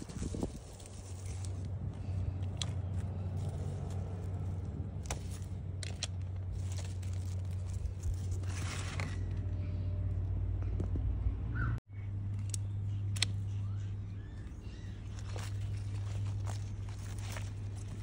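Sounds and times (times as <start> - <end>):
leaves rustling: 0.0 - 9.5, 14.8 - 18.0
steady low hum: 0.0 - 18.0
plant stems snapping: 5.0 - 9.2, 12.4 - 13.5.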